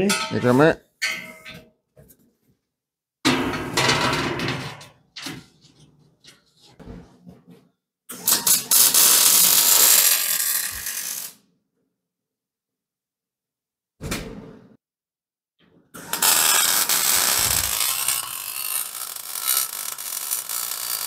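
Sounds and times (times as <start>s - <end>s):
metal knocking and scraping: 3.3s - 7.6s
welder arc crackling: 8.3s - 11.3s, 16.0s - 21.0s.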